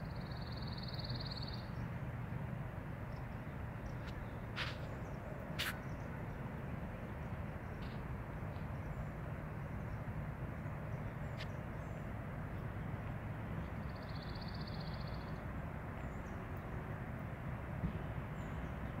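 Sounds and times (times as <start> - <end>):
low outdoor rumble: 0.0 - 19.0
songbird trilling: 0.1 - 1.8, 13.8 - 15.4.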